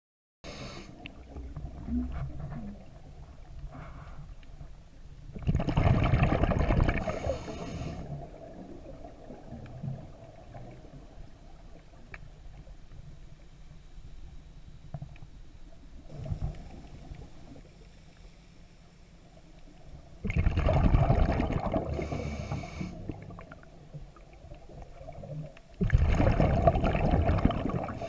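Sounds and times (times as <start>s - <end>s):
low underwater rumble: 1.0s - 28.0s
gurgling rush of bubbles: 5.4s - 10.8s, 20.2s - 23.8s, 24.7s - 28.0s
faint clicks: 12.0s - 13.2s.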